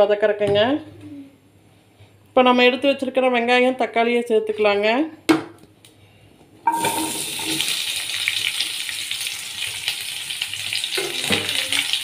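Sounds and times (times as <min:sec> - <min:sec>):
vegetables sizzling in hot oil: 0:06.7 - 0:12.0.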